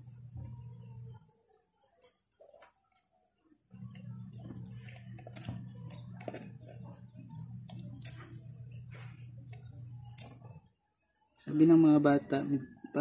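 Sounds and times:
steady low hum: 0:00.0 - 0:01.3, 0:03.7 - 0:10.7.

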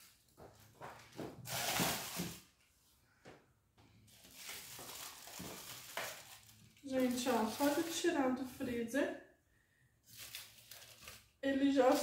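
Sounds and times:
plastic rustle: 0:01.4 - 0:02.6, 0:04.1 - 0:08.8, 0:10.0 - 0:12.0.

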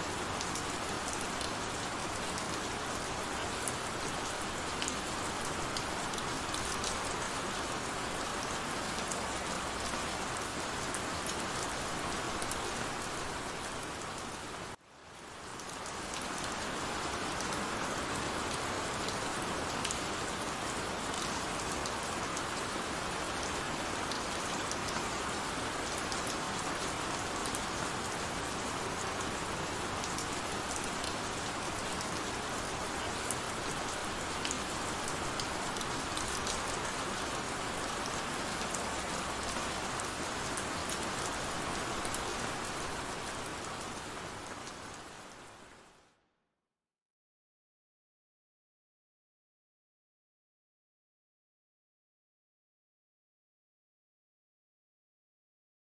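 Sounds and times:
heavy rain: 0:00.0 - 0:46.0.

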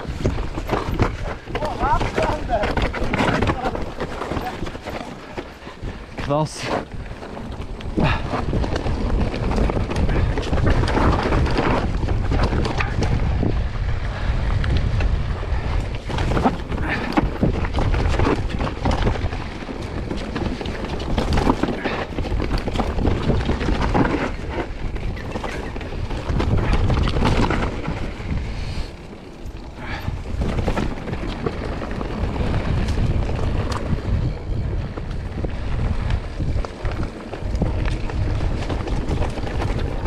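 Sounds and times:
bike rattling knocks: 0:00.0 - 0:13.5, 0:14.9 - 0:28.6
tyres rumbling on rough trail: 0:00.0 - 0:40.0
wind buffeting microphone: 0:00.0 - 0:40.0.

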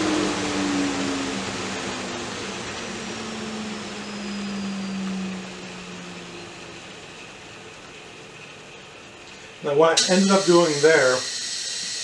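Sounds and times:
table saw winding down: 0:00.0 - 0:07.4, 0:10.0 - 0:12.0
dust collector rushing: 0:00.0 - 0:12.0.

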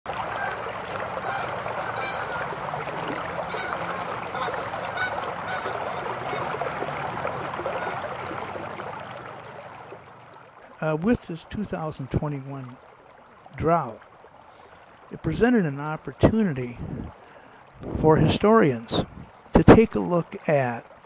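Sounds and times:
flock of birds calling: 0:00.4 - 0:06.9, 0:07.6 - 0:08.3.

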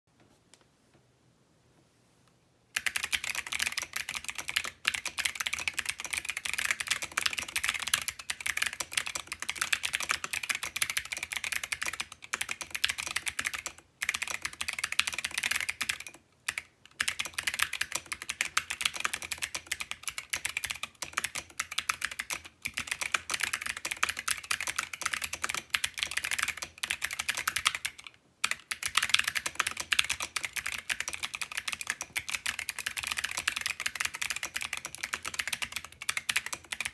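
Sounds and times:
mechanical keyboard typing: 0:02.8 - 0:36.9.

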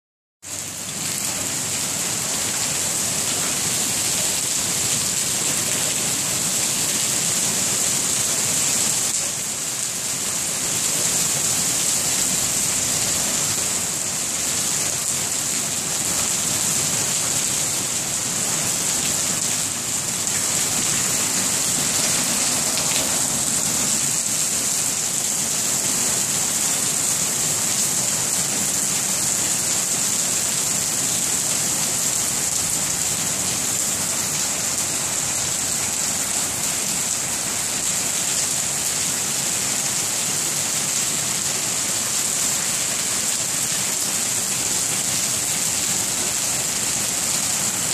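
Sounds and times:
heavy rain and hail on pavement: 0:00.4 - 0:47.9.

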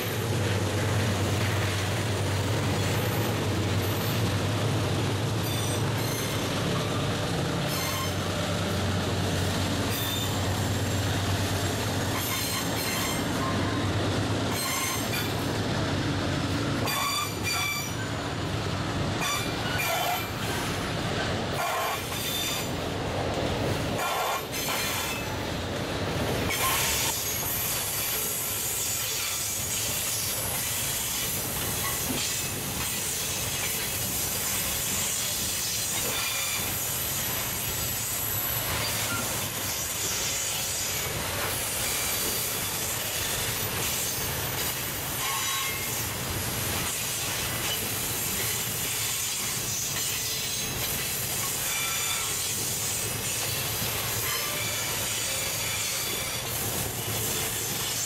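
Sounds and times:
diesel locomotive drone: 0:00.0 - 0:58.0
hiss of rolling train cars: 0:00.0 - 0:58.0
train wheels squealing: 0:05.3 - 0:08.4, 0:09.9 - 0:10.9, 0:11.8 - 0:15.5, 0:16.8 - 0:18.2, 0:19.2 - 0:20.7, 0:21.6 - 0:22.8, 0:24.0 - 0:25.4, 0:26.5 - 0:58.0.

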